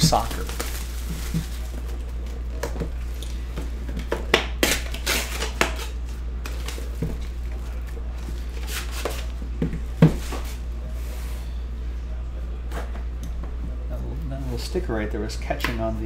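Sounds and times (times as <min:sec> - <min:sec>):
paper wrapper ripping: 0:00.0 - 0:02.4, 0:04.6 - 0:07.0.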